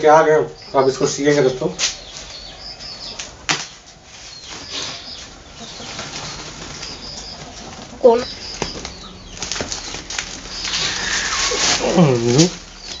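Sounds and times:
plastic sack rustling and crinkling: 3.2s - 13.0s.

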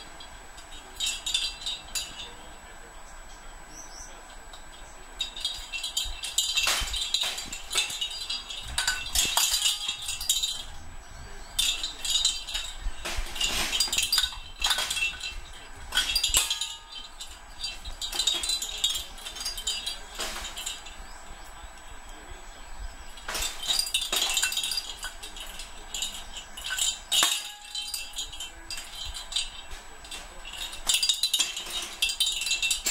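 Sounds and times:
bell jingling in ball: 5.2s - 21.2s.

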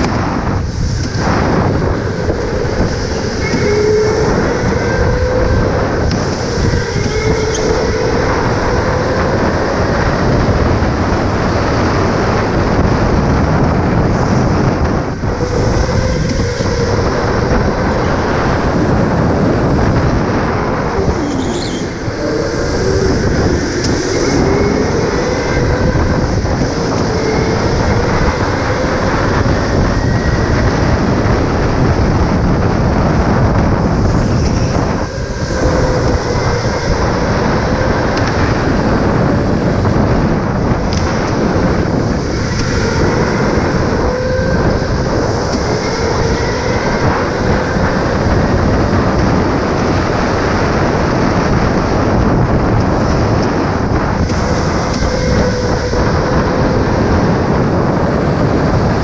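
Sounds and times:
electric motor whine: 0.0s - 59.0s
kart rumbling and rattling: 0.0s - 59.0s.

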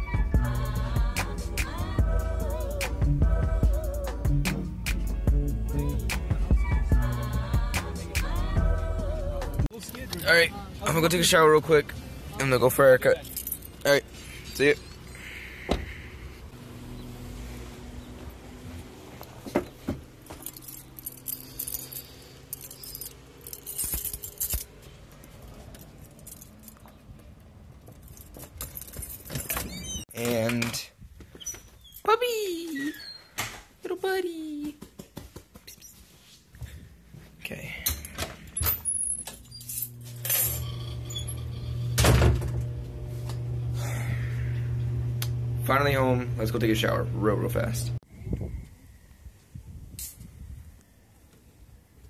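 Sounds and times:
keys jangling: 13.2s - 14.0s, 20.1s - 27.1s, 27.8s - 30.0s, 37.9s - 41.3s
objects clinking and knocking: 19.6s - 27.0s
steady low hum: 39.8s - 48.0s.

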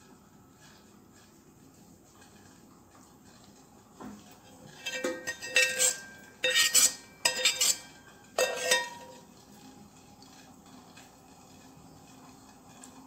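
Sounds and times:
ladle scraping a metal pan: 4.6s - 9.4s.

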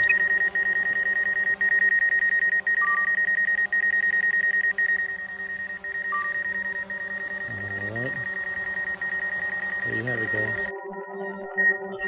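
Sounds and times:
drone propellers humming: 0.0s - 10.7s
rapid electronic beeping: 0.0s - 10.7s
short beep: 0.0s - 10.7s.

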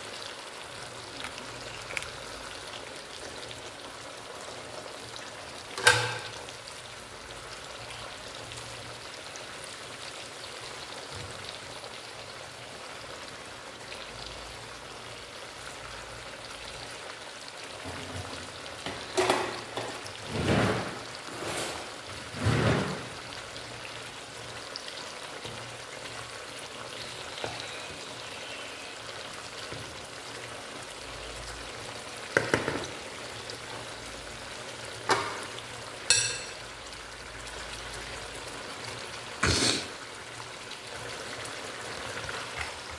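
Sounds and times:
steaks sizzling in oil: 0.0s - 42.9s
cookware knocks: 5.8s - 6.4s, 32.4s - 32.9s, 36.1s - 36.6s.

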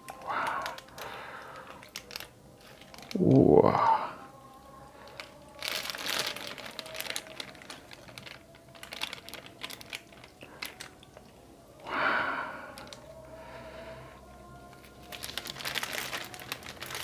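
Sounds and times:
plastic bag crinkling: 0.0s - 3.7s, 4.9s - 11.4s, 12.7s - 13.1s, 14.7s - 17.0s.

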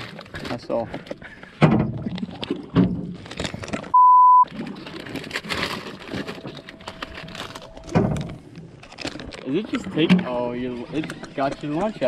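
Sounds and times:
censor bleep: 3.9s - 4.5s.

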